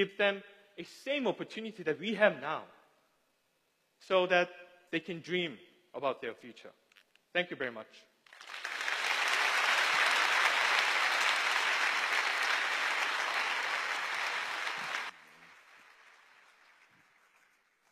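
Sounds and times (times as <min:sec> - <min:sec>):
large audience applauding: 0:08.3 - 0:17.9.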